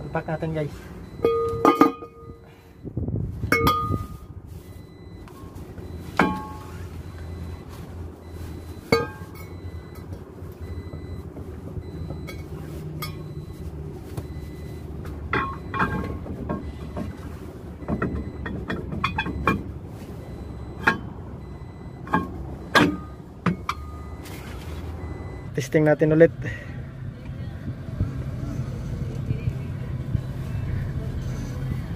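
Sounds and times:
metal brake drum clinking: 1.0 - 2.5, 3.5 - 4.3, 5.4 - 6.7, 8.9 - 10.1, 15.3 - 16.8, 22.0 - 24.1.

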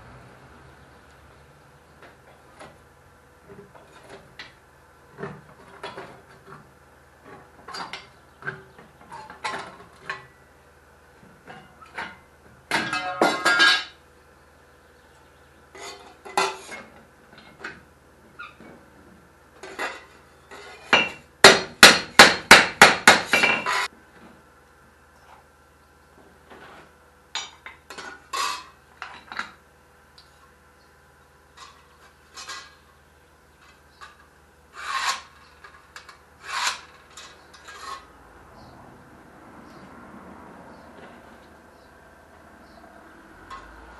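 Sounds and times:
clanks and clinks of metal: 11.5 - 14.0, 34.9 - 38.1, 43.4 - 43.8
file rasping on metal sheet: 34.7 - 35.4, 36.4 - 37.0.

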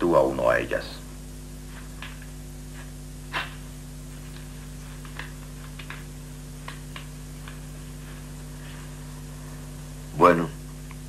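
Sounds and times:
low electrical hum: 0.0 - 11.0
soft clicks and rustles: 1.6 - 9.0.

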